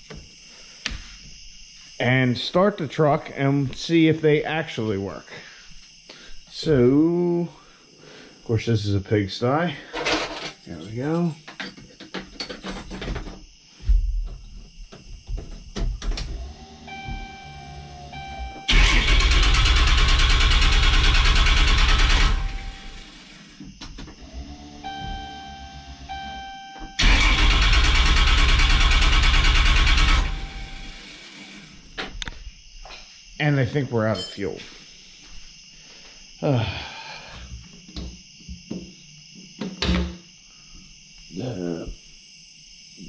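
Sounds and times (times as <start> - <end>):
diesel engine cranking on starter: 16.2 - 26.3, 26.9 - 31.7
faint steady tone: 16.3 - 18.7, 22.3 - 23.1, 24.2 - 27.0, 30.2 - 31.1
grunt-like vocal sound: 36.4 - 37.2.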